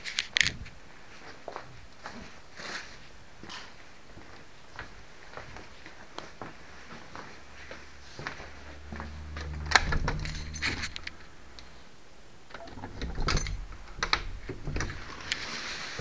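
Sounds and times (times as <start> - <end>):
low hum: 7.8 - 15.2
objects clicking and rattling: 9.4 - 11.2.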